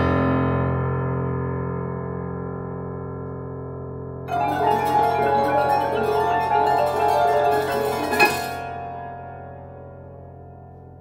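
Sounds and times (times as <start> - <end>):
low piano strings ringing: 4.1 - 11.0
rapid piano notes: 4.3 - 11.0.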